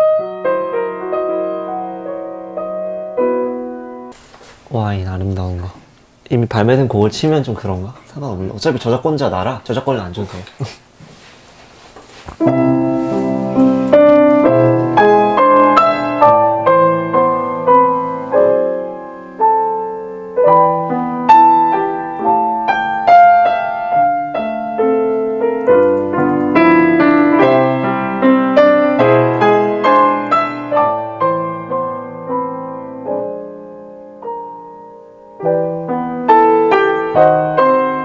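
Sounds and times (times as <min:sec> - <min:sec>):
solo grand piano: 0:00.0 - 0:04.2, 0:12.3 - 0:38.0.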